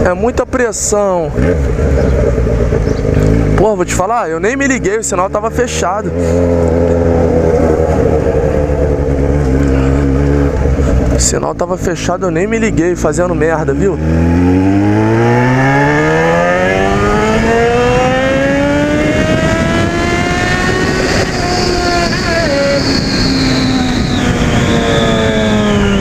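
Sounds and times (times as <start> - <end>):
motorcycle engine accelerating: 0.0 - 26.0
wind rushing over microphone: 6.0 - 26.0.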